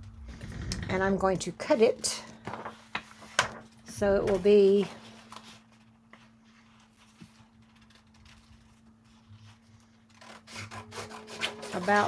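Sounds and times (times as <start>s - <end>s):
paper rustling: 2.5s - 12.0s.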